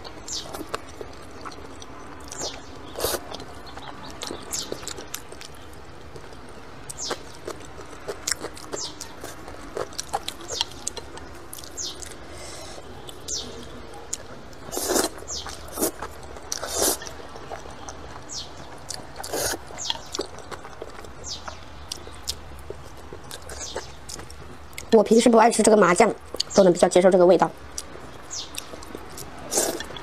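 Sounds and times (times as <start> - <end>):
noodles slurped: 14.7 - 17.2, 29.5 - 29.9.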